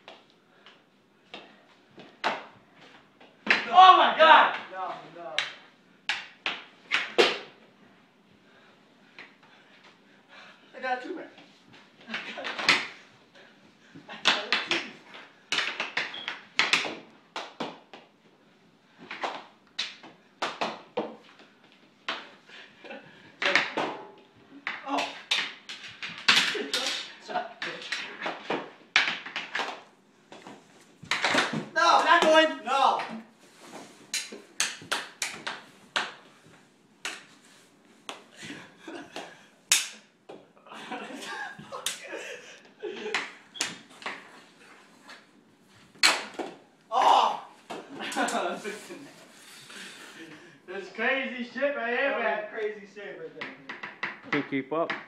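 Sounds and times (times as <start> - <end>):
hockey sticks clacking on tile: 0.0 - 3.7, 5.4 - 7.6, 11.4 - 13.1, 13.9 - 18.2, 19.0 - 22.4, 23.4 - 40.5, 41.6 - 46.6, 53.4 - 55.0.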